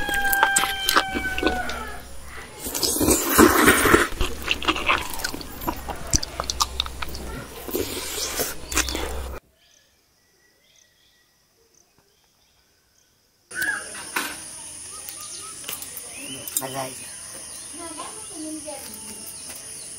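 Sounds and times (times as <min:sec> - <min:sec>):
chewing: 0:00.0 - 0:09.4
fingers scooping food on metal plate: 0:00.0 - 0:09.4
low steady hum: 0:03.8 - 0:09.4.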